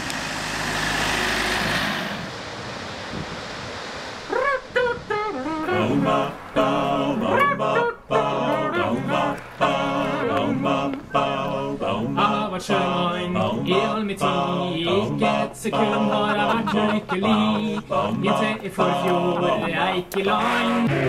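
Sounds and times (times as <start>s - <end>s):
vocal quartet singing a cappella: 4.3s - 21.0s.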